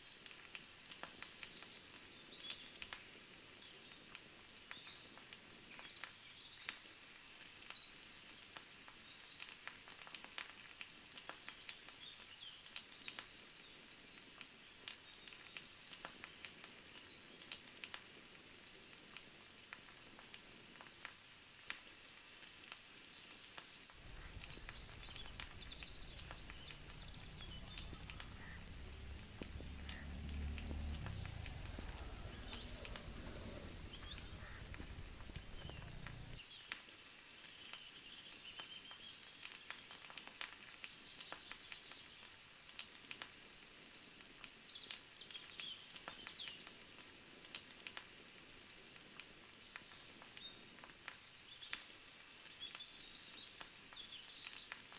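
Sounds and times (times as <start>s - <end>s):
wood fire crackling and sizzling: 0.1s - 54.9s
birds chirping: 24.0s - 36.4s
low rumble: 24.0s - 36.4s.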